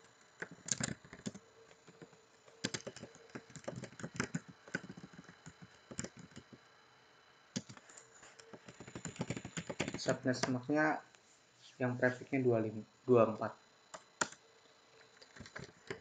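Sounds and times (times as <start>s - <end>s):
computer keyboard typing: 0.0s - 6.6s, 7.6s - 7.8s, 8.4s - 10.6s, 13.9s - 14.4s, 15.0s - 16.0s.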